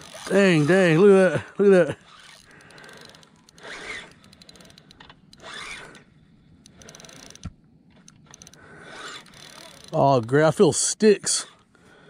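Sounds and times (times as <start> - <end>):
fishing reel clicking: 0.0 - 1.1, 2.0 - 10.0.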